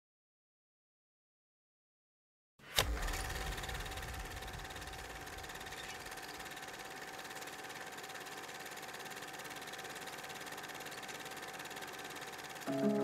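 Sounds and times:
film projector clattering: 2.8 - 13.0.

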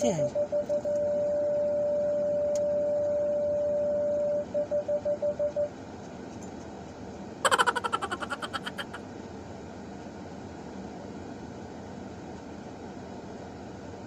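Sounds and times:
parking sensor beeps: 0.2 - 5.7.

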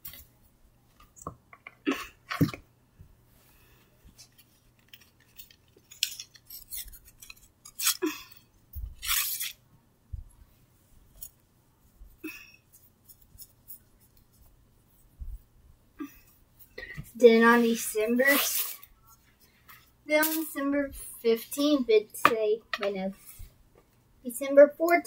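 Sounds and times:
rustling: 10.2 - 15.6.

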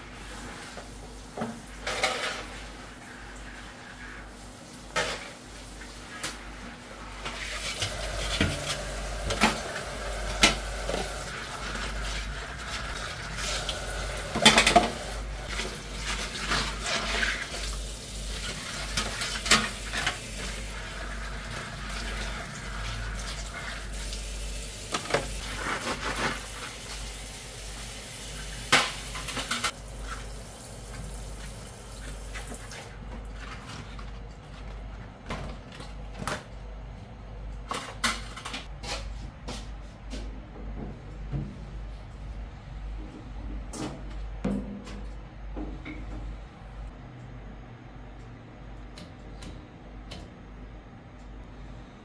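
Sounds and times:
tap water running: 7.2 - 33.0
sponge scrubbing: 7.4 - 14.2, 15.0 - 18.9, 25.4 - 26.9.

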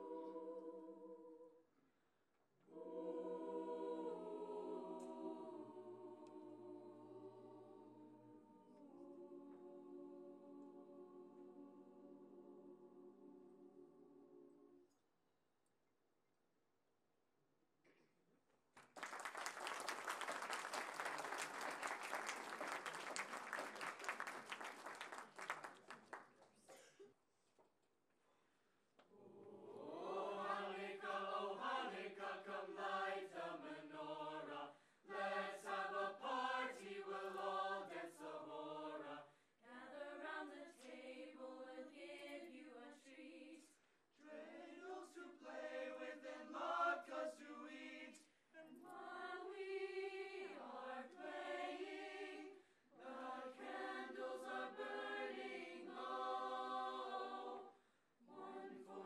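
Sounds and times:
mixed choir singing in chords: 0.0 - 1.7, 2.6 - 14.9, 29.1 - 59.0.

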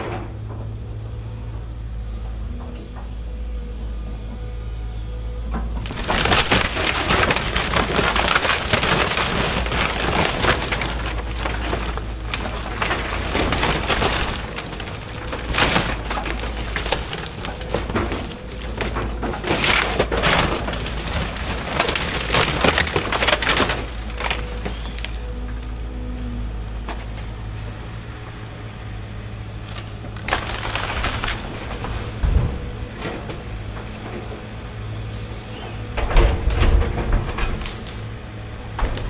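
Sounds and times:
excavator diesel engine running: 0.0 - 39.0
crashes and clattering debris: 5.7 - 25.7, 29.6 - 34.5, 35.6 - 39.0
wooden boards cracking and splintering: 5.7 - 25.7, 29.6 - 34.4, 35.6 - 39.0.

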